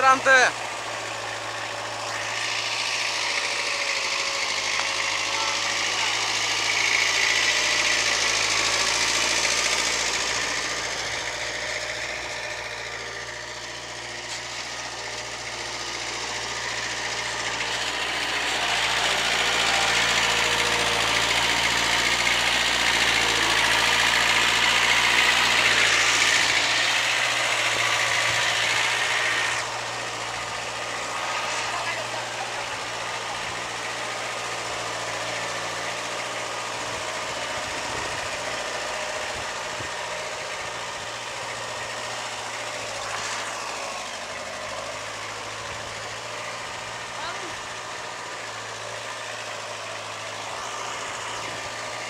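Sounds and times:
tractor engine running: 0:00.0 - 0:52.0.

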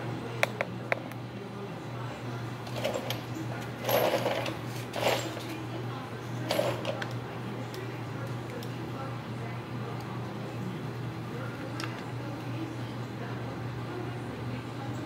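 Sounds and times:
small parts and tools rattling: 0:02.6 - 0:05.6, 0:06.4 - 0:07.1.

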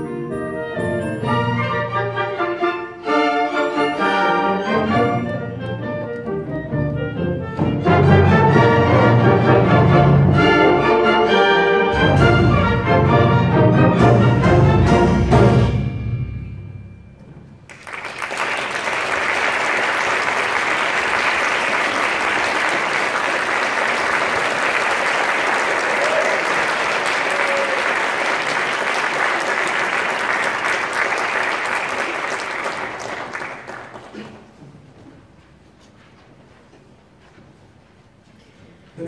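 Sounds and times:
orchestra chord: 0:06.6 - 0:17.5
audience applauding: 0:17.7 - 0:34.6.

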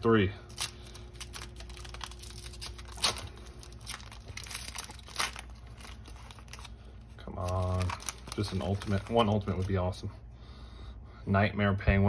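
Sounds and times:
foil wrapper crinkling and tearing: 0:00.4 - 0:10.0.

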